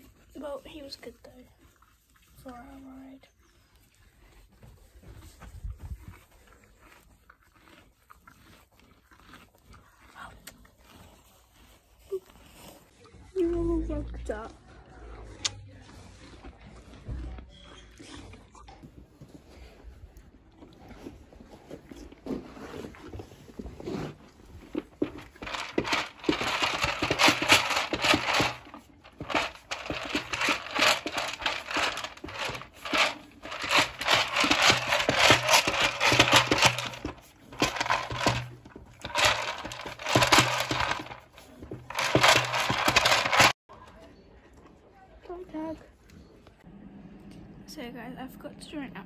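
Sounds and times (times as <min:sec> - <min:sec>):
plastic ball rattling on floor: 0:24.9 - 0:43.6.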